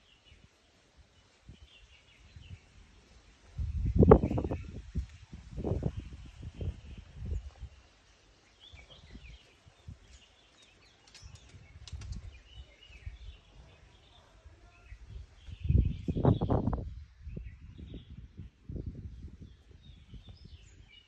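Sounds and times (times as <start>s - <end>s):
outdoor ambience: 0.0s - 21.0s
low rumbles on microphone: 3.5s - 7.8s, 14.9s - 20.9s
birds chirping: 5.6s - 21.0s.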